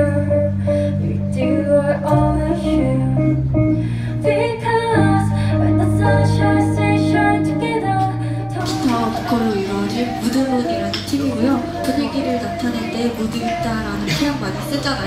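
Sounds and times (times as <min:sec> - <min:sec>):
guitar accompaniment: 0:00.0 - 0:15.0
woman singing slow song: 0:00.0 - 0:15.0.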